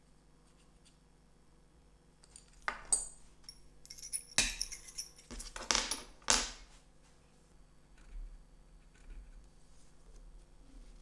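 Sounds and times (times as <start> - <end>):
metallic clink: 2.2 - 6.1.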